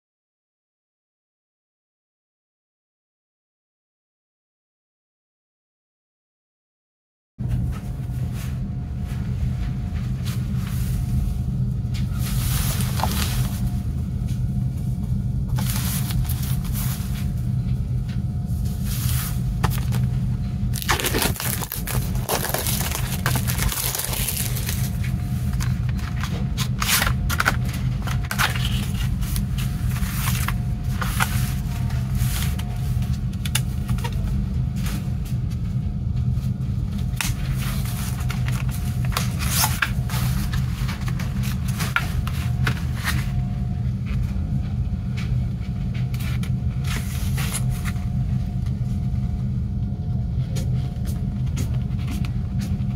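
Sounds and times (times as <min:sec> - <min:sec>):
steady low hum: 0:07.4 - 0:52.9
cellophane crinkling and tearing: 0:20.8 - 0:31.7.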